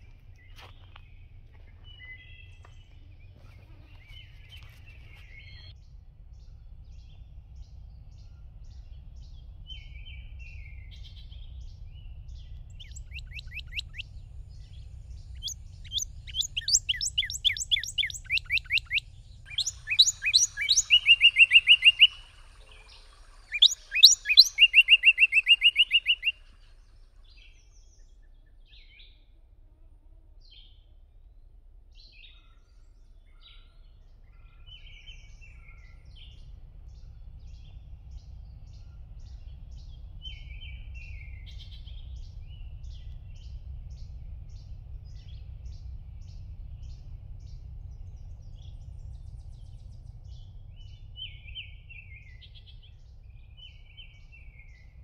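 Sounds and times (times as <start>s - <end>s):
songbirds singing trills: 0.0s - 29.3s, 30.4s - 55.0s
low steady rumble: 0.0s - 55.0s
short bird chirps: 12.7s - 27.6s.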